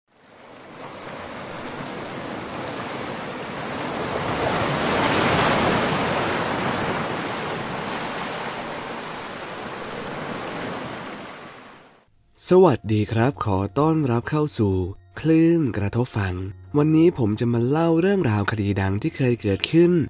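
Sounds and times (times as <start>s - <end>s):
ocean surf rushing: 0.1s - 12.0s.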